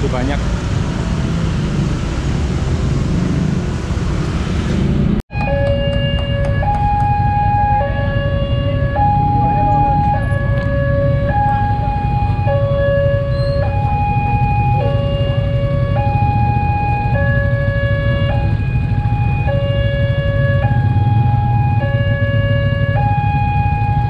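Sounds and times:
level crossing two-tone alarm: 5.3 - 18.3.

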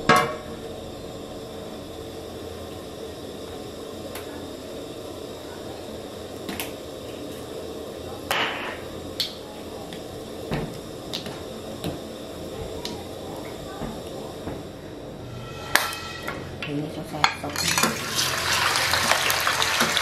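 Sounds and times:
stove low hum: 0.0 - 20.0
water drops hissing in pan: 17.6 - 20.0.

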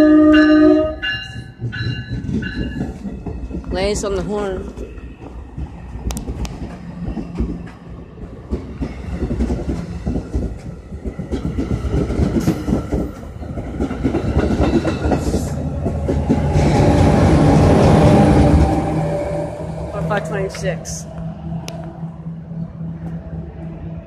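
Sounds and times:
locomotive drone: 0.0 - 24.0
train wheels clicking over rail joints: 1.2 - 18.7.

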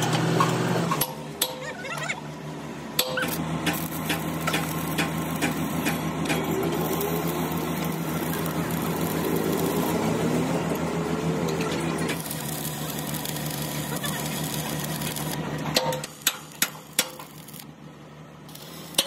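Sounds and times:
steady low hum: 1.1 - 19.0
welding arc crackling: 3.2 - 17.8, 18.5 - 19.0.

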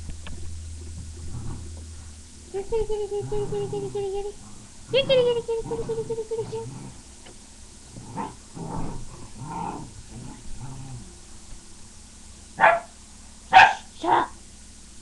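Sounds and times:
dog growling in play: 1.0 - 11.4
dog barking: 12.6 - 13.9.

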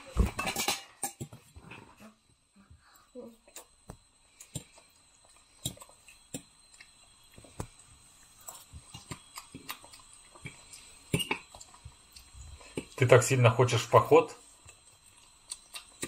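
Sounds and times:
child chewing: 2.8 - 13.2, 14.4 - 16.0.

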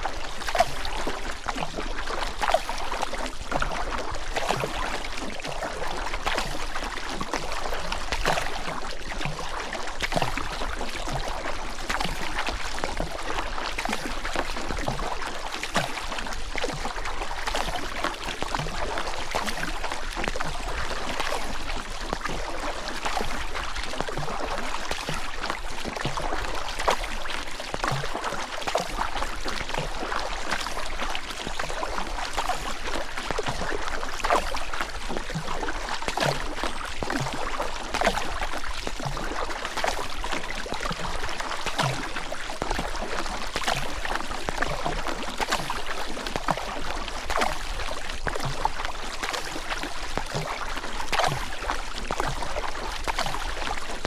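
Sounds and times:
river water running and splashing: 0.0 - 54.0.

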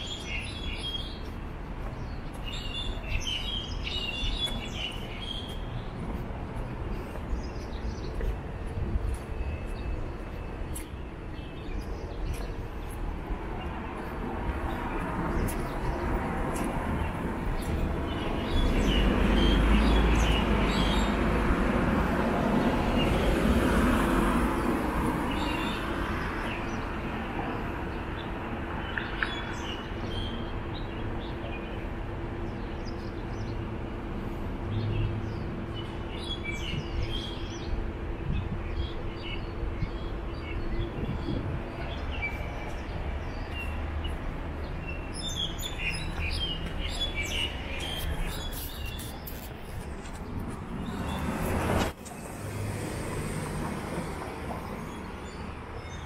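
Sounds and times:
birds chirping: 0.0 - 21.3, 24.6 - 52.4
street background: 0.0 - 56.0
vehicle passing by: 50.0 - 55.0.

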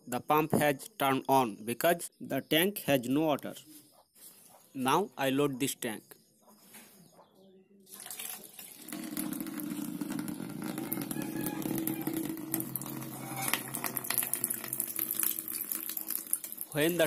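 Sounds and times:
water pouring into plastic container: 7.9 - 17.0.

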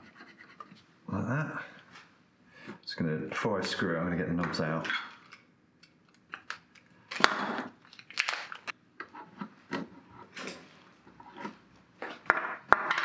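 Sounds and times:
crinkling handling noise: 4.9 - 8.8.

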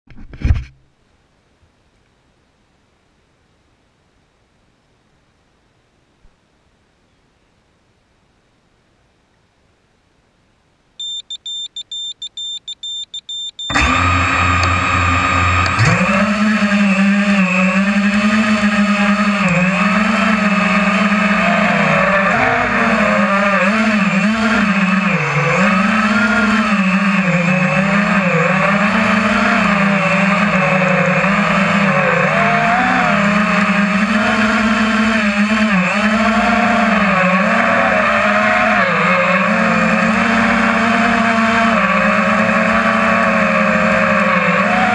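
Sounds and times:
rapid electronic beeps: 11.0 - 13.8
drone motors whining: 11.0 - 44.9.

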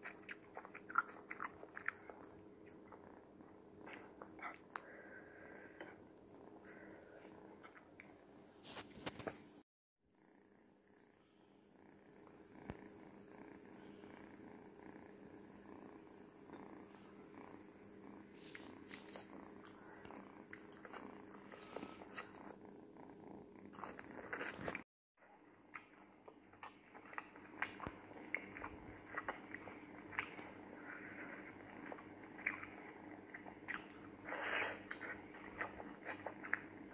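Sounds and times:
kitten purring: 0.0 - 9.4, 10.1 - 36.9.

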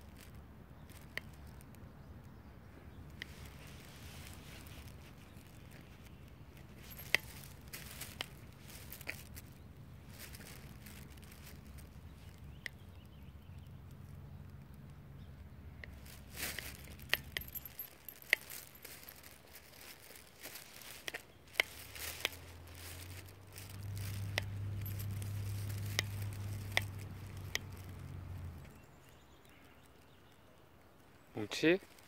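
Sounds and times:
footsteps on asphalt: 2.7 - 14.6, 15.8 - 30.4
leash clasp clicks and jingling: 3.2 - 12.8, 15.8 - 28.8
low steady rumble: 21.6 - 29.0.

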